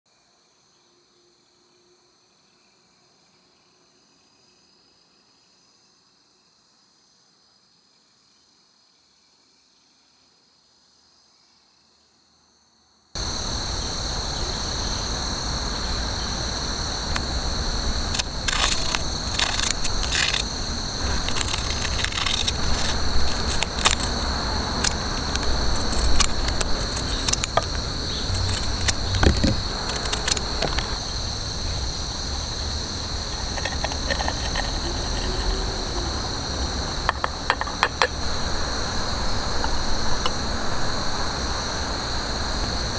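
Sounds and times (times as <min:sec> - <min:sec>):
high-pitched insect chorus: 0:00.1 - 0:42.9
dry herbs rustling: 0:18.0 - 0:31.0
scissors snipping paper sachet: 0:18.2 - 0:31.0.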